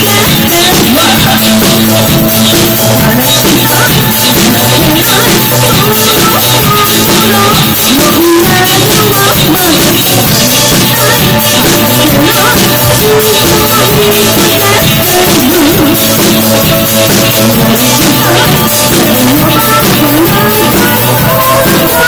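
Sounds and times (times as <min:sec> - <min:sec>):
drums: 0:00.0 - 0:22.0
electric guitar: 0:00.0 - 0:22.0
woman singing: 0:00.0 - 0:22.0.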